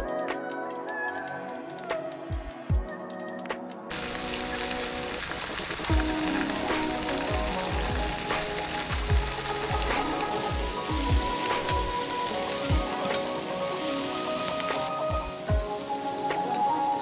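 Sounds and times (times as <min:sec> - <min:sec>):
vegetables sizzling in frying pan: 0:04.0 - 0:17.0.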